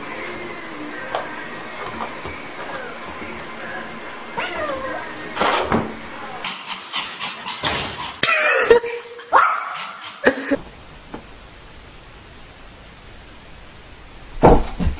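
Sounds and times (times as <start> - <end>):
small dog barking: 7.2 - 10.6
person's voice: 8.2 - 10.6.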